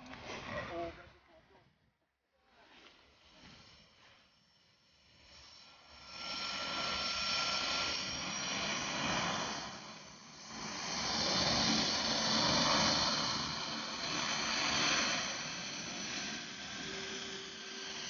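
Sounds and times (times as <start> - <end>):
turbine whine: 2.7 - 18.0
propeller rushing: 5.2 - 18.0.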